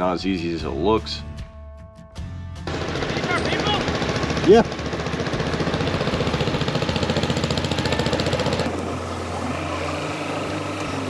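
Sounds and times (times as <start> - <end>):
boat engine running: 2.7 - 11.0.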